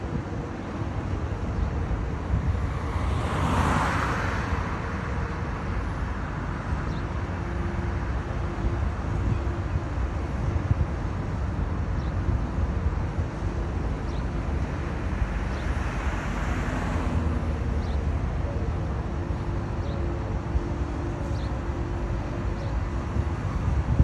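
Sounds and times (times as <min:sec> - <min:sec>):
road traffic rumble: 0:00.0 - 0:24.0
vehicle passing: 0:02.6 - 0:04.7.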